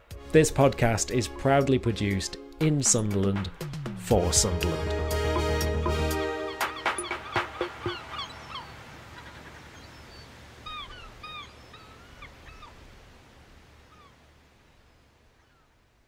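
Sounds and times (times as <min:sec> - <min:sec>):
arching animal cries: 0:06.2 - 0:09.6
soft even hiss: 0:08.1 - 0:16.0.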